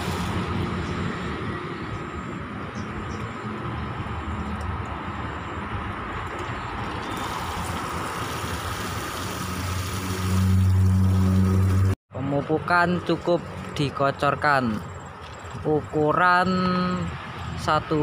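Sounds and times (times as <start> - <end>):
hose water splashing into bucket: 0.0 - 0.9, 6.3 - 12.0.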